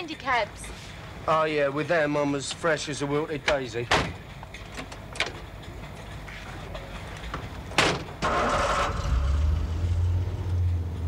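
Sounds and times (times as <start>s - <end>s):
car door slamming: 3.9s - 4.2s, 7.7s - 8.1s
engine starter cranking: 7.9s - 9.7s.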